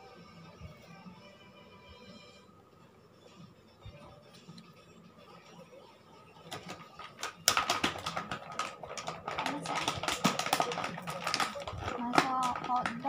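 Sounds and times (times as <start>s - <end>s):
plastic toy pots clattering: 6.5s - 13.0s.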